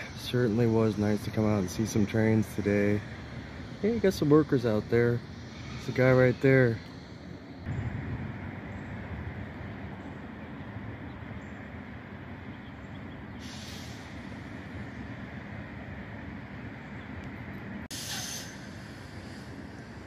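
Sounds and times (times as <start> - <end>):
air brakes hissing: 0.0 - 7.8, 13.4 - 15.1, 17.8 - 20.0
freight train rumble: 0.0 - 20.0.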